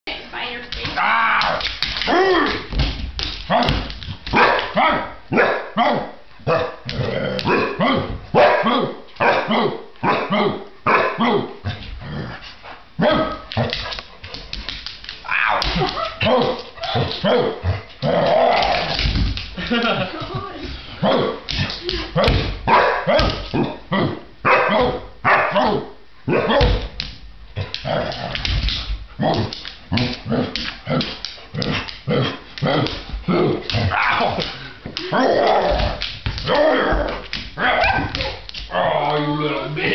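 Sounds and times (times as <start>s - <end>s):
large dog barking: 4.3s - 6.8s, 7.4s - 11.6s, 13.0s - 13.7s, 15.4s - 17.8s, 22.2s - 26.9s, 36.4s - 39.0s.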